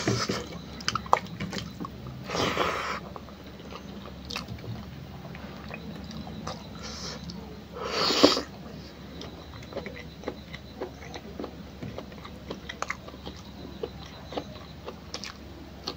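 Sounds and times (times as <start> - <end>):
wet chewing and mouth smacks: 0.0 - 2.2, 3.0 - 7.4, 9.1 - 15.9
slurping: 2.2 - 3.2, 6.5 - 8.5.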